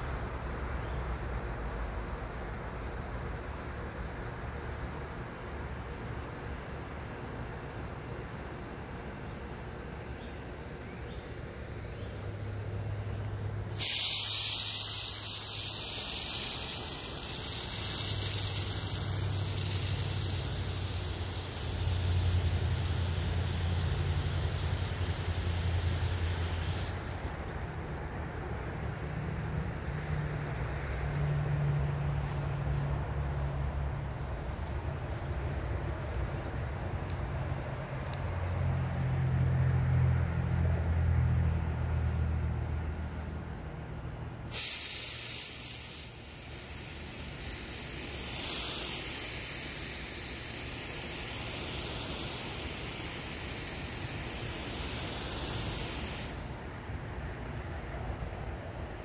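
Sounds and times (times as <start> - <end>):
water spraying from hose nozzle: 13.6 - 27.4, 44.5 - 56.6.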